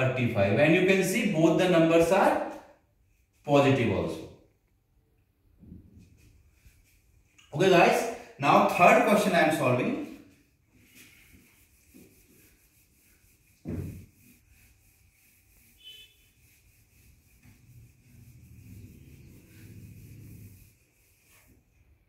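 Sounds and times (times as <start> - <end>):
eraser rubbing on whiteboard: 6.0 - 7.4, 9.0 - 22.0.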